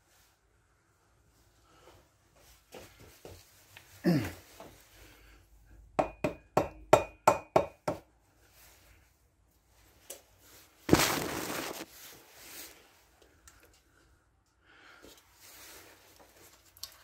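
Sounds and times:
rubber mallet knocking on metal: 6.0s - 8.0s.

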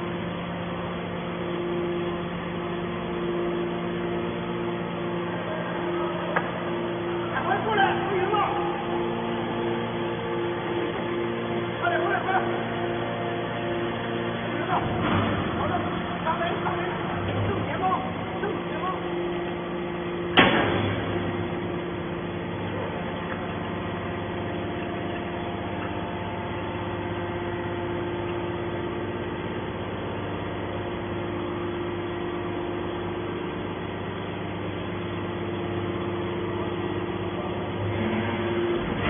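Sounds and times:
hydraulic pump humming: 0.0s - 39.0s
sharp bang: 20.4s - 21.2s.

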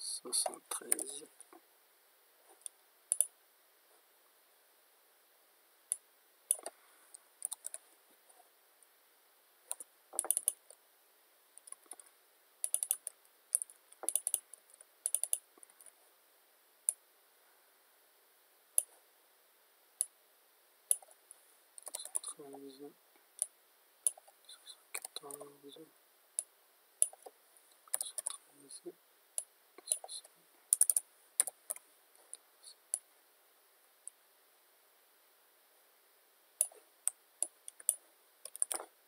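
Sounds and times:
keyboard typing clicks: 2.6s - 3.3s, 5.9s - 6.7s, 7.4s - 7.8s, 9.7s - 10.8s, 11.6s - 15.9s, 20.9s - 21.1s, 21.8s - 22.4s, 23.4s - 24.4s, 25.0s - 25.5s, 27.0s - 27.3s, 27.9s - 28.4s, 30.7s - 31.8s, 37.4s - 38.9s.

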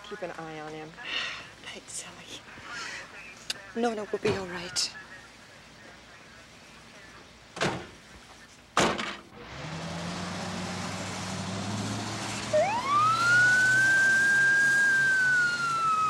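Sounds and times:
door slamming: 7.6s - 7.9s
ambulance engine running: 10.9s - 16.0s
siren wailing: 12.5s - 16.0s.

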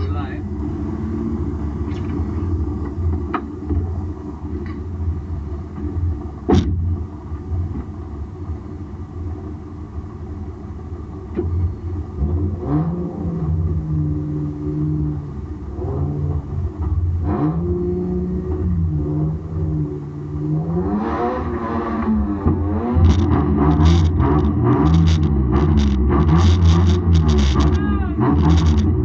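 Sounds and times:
car engine idling unevenly: 0.0s - 17.2s
engine revving: 12.2s - 29.0s.

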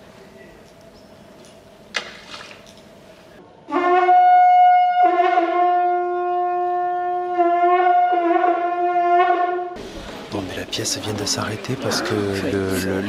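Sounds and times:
horn blasts on one note: 3.7s - 9.8s.

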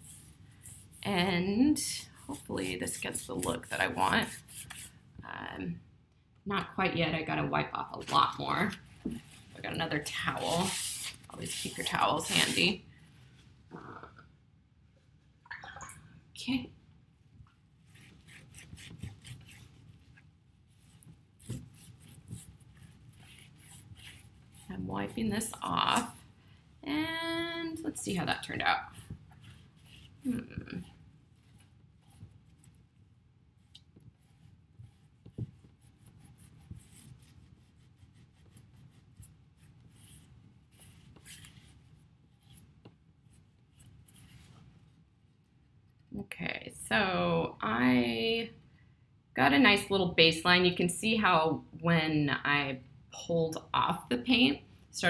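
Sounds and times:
cloth rubbing on ceramic: 8.1s - 14.1s, 17.8s - 26.2s, 28.0s - 33.0s.

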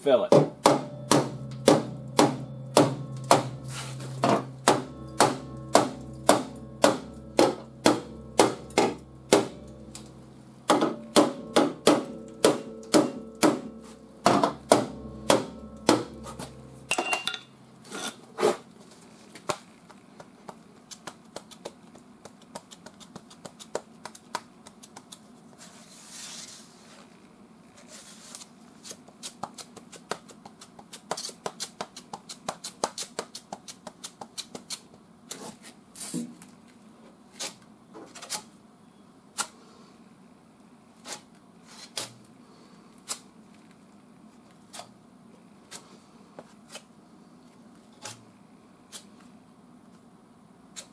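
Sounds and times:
hammer tapping on metal: 0.3s - 17.6s
low hum: 0.8s - 17.8s.

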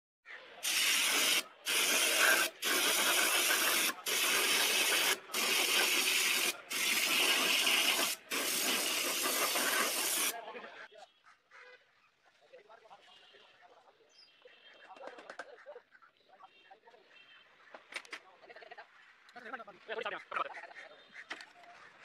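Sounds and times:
spray gun hissing: 0.6s - 10.4s.

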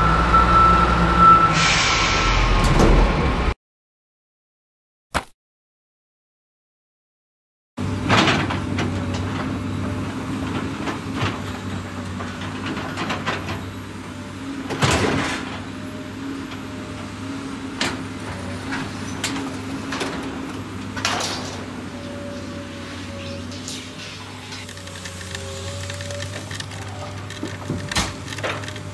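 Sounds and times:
steady engine drone: 21.8s - 28.9s
toy excavator knocking and scraping: 24.5s - 28.9s.

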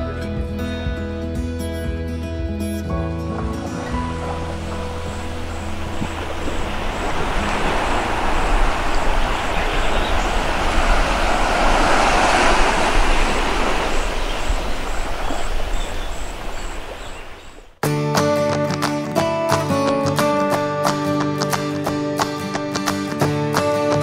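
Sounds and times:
surf washing onto beach: 3.6s - 17.6s.

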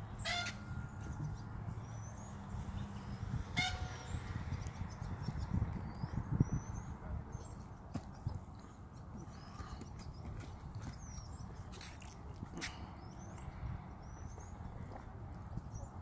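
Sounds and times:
low rumble on microphone: 1.0s - 8.6s.

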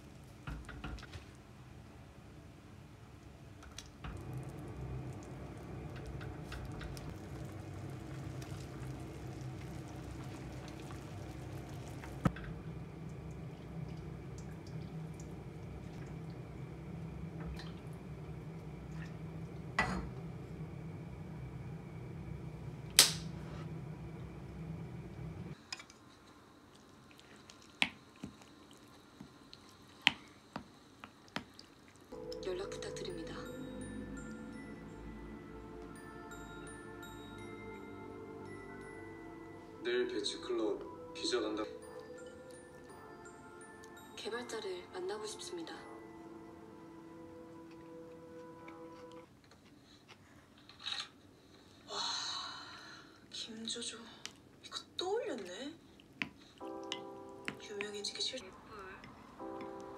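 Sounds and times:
steady low hum: 1.6s - 25.6s, 32.1s - 44.0s
soup bubbling in pot: 3.9s - 22.2s.

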